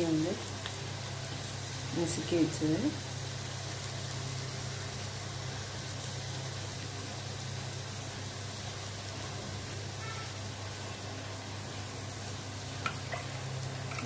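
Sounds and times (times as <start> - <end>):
hot oil sizzling in a pan: 0.0 - 14.0.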